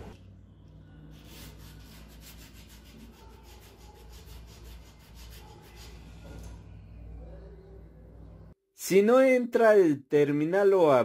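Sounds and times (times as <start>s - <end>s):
carbon brush rubbing on abrasive: 1.2s - 6.2s.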